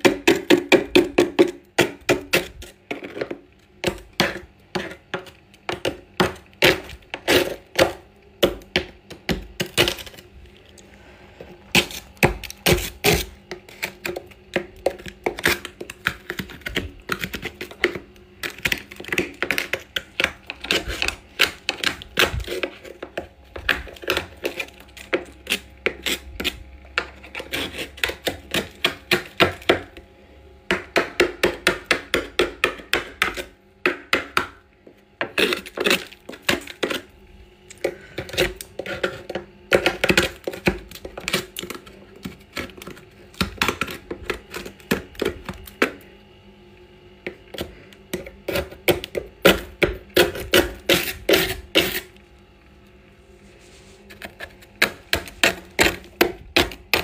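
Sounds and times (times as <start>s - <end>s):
plastic scraper scraping frost: 0.1s - 8.0s, 11.0s - 29.9s, 35.2s - 37.1s, 37.7s - 45.8s, 47.5s - 52.2s, 53.3s - 57.0s.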